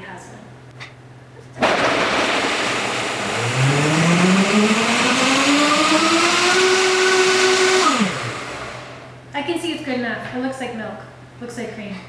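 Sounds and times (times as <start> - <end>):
blender whirring: 1.6 - 9.1.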